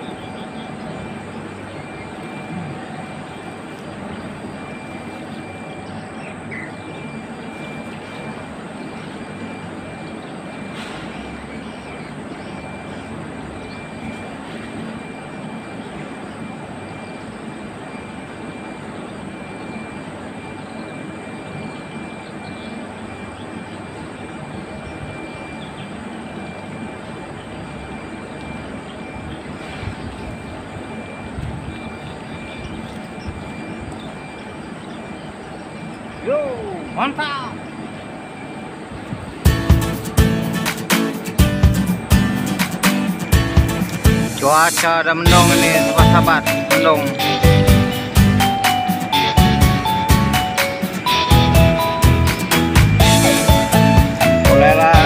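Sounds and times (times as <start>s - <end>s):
outdoor background rush: 0.0s - 55.0s
thin high tone: 35.8s - 38.8s, 39.5s - 55.0s.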